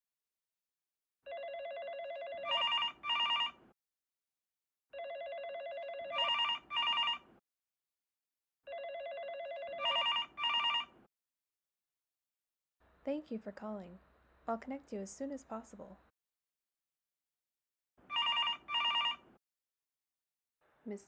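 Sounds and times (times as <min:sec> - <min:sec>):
electronic telephone ringing: 0:01.3 - 0:03.6, 0:04.9 - 0:07.3, 0:08.7 - 0:11.0, 0:18.1 - 0:19.3.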